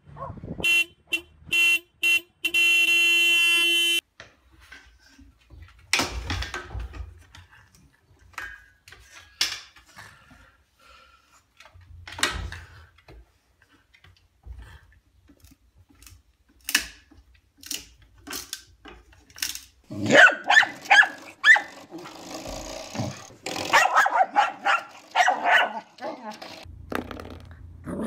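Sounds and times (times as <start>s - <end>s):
dog barking and growling: 19.9s - 22.3s, 23.0s - 26.4s, 27.8s - 28.0s.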